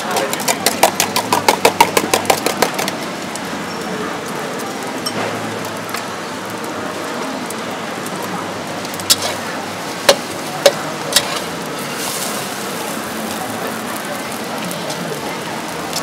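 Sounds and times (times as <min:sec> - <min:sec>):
egg sizzling in hot oil: 0:04.8 - 0:16.0.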